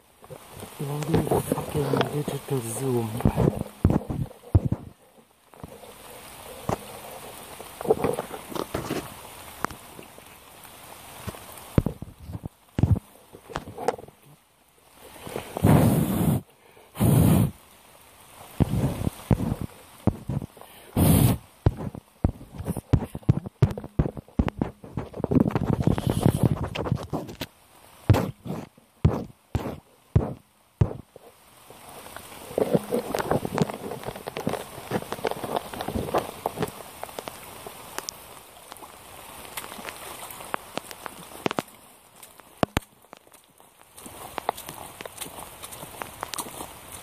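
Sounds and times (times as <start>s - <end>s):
water splash: 0.0s - 14.3s, 18.2s - 45.0s
rain hiss: 0.0s - 47.0s
rubber boots squelching in puddle: 21.6s - 27.5s, 28.1s - 47.0s.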